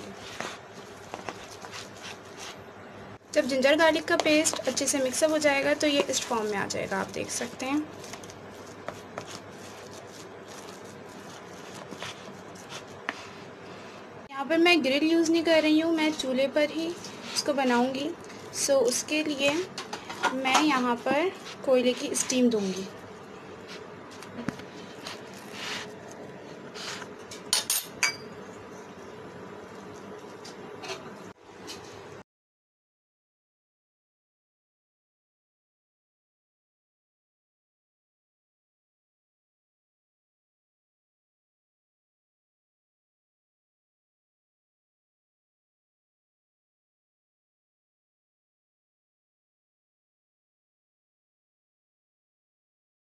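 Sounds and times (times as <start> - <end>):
spoon stirring meat mixture: 0.0 - 2.6, 3.4 - 14.1, 15.4 - 27.5.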